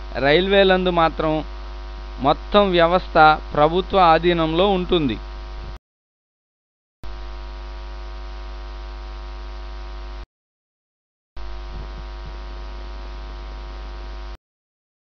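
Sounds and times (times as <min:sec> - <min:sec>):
electrical mains hum: 0:00.0 - 0:05.8, 0:11.4 - 0:14.4.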